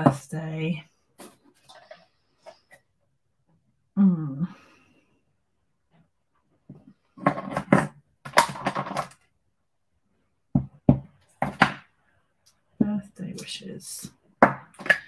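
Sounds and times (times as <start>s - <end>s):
woman speaking softly: 0.0s - 0.9s, 4.0s - 4.6s, 12.8s - 14.1s.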